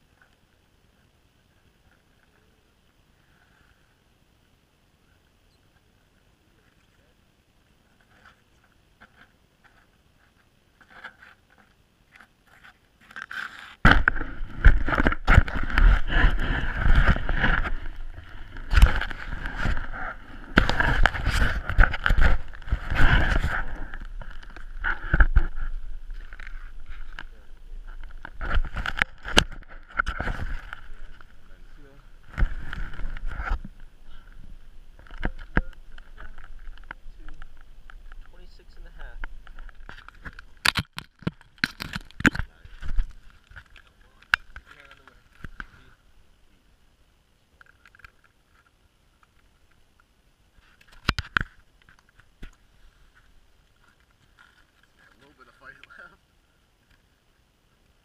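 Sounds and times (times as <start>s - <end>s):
camera handling rubbing and rumbling: 7.9s - 45.9s, 47.6s - 49.8s, 50.6s - 56.0s.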